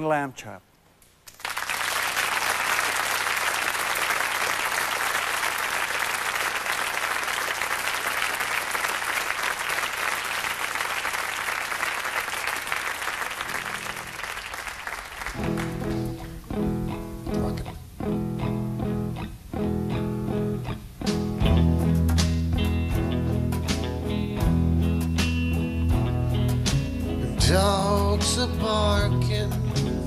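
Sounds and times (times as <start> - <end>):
audience applauding: 1.2 - 16.4
acoustic guitar playing: 13.4 - 14.4, 15.3 - 30.0.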